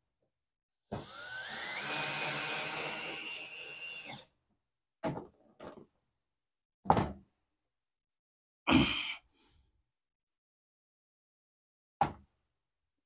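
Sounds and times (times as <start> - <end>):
cordless drill driving screw: 0.9 - 4.2.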